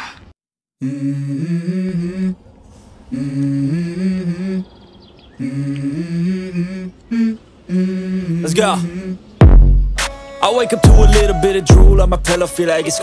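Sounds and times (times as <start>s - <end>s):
person humming a melody: 0.8s - 2.4s, 3.1s - 4.7s, 5.4s - 9.2s, 10.0s - 13.0s.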